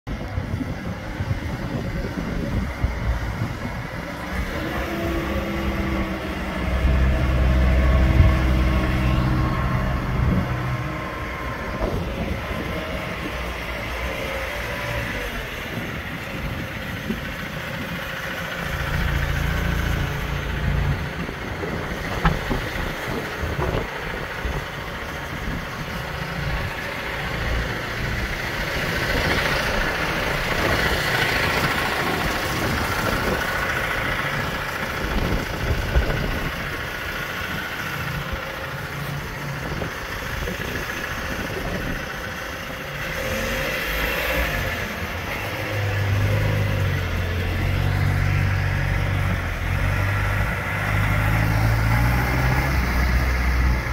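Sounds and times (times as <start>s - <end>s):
diesel engine rumble: 0.0s - 53.9s.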